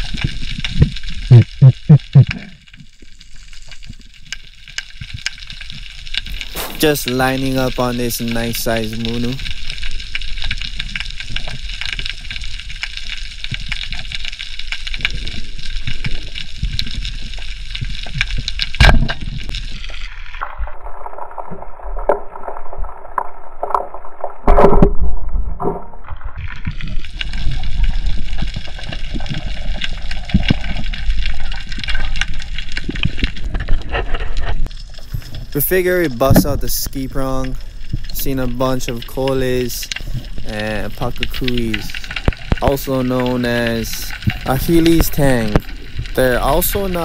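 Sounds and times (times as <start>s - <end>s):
crackly underwater wash: 0.0s - 47.0s
sharp crack: 18.0s - 19.6s.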